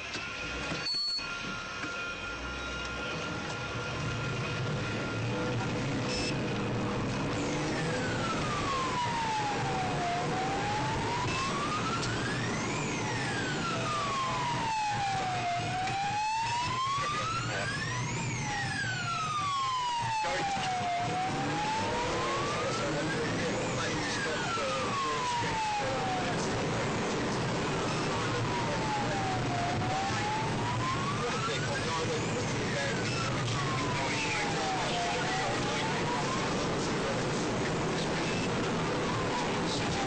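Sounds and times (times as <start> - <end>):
engine and road noise: 0.0 - 40.0
fainter second siren: 0.0 - 40.0
police siren wailing: 0.0 - 40.0.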